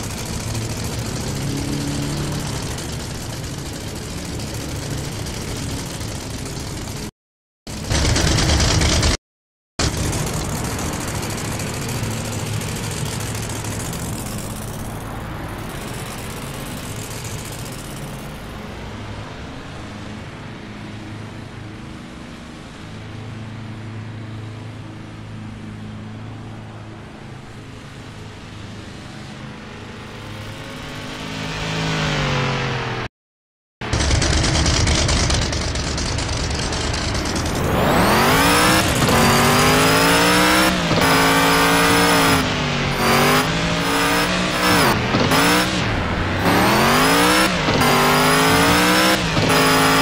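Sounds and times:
engine revving: 0:00.0 - 0:07.1, 0:07.7 - 0:09.2, 0:09.8 - 0:18.6, 0:33.8 - 0:50.0
vehicle engines running: 0:00.0 - 0:07.1, 0:07.7 - 0:09.2, 0:09.8 - 0:33.1, 0:33.8 - 0:50.0.

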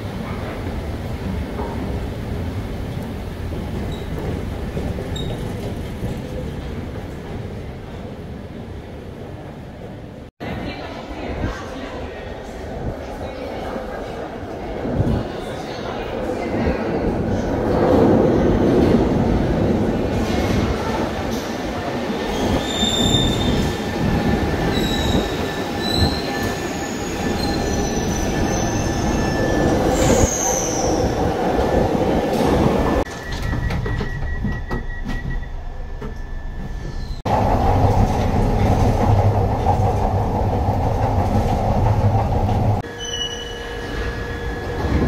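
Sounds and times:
subway train rumble: 0:00.0 - 0:45.0
high-pitched wheel squeals: 0:33.1 - 0:37.2, 0:42.9 - 0:45.0
steady train whine: 0:34.2 - 0:45.0.

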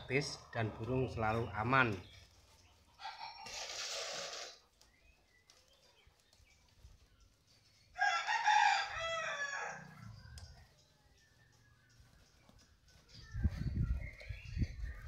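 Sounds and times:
rooster crowing: 0:08.0 - 0:10.0.

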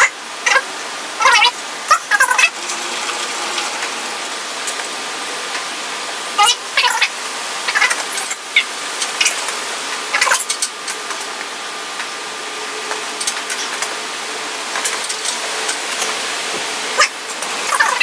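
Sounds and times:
spanner clicking on metal lathe: 0:02.4 - 0:05.0.

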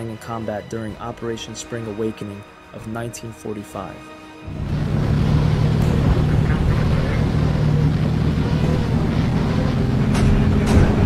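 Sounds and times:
heavy engine droning: 0:04.4 - 0:11.0.

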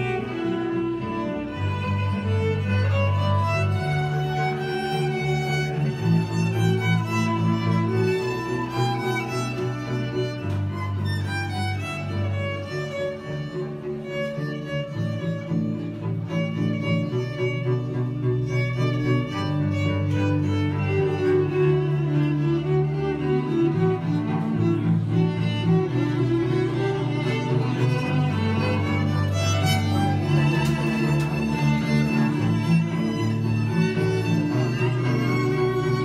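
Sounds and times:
electric violin melody: 0:00.0 - 0:36.0
low sustained bass notes: 0:00.0 - 0:36.0.

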